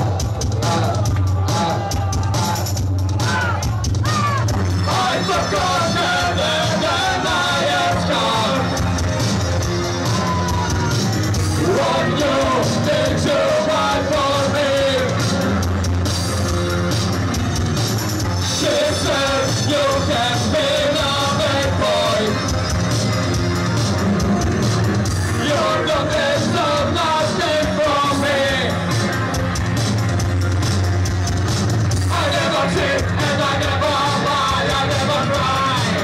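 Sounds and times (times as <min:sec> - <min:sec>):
live noise-pop band playing: 0:00.0 - 0:36.0
sung vocal line: 0:04.8 - 0:09.0, 0:11.4 - 0:15.6, 0:18.4 - 0:22.6, 0:25.2 - 0:29.0, 0:32.0 - 0:36.0.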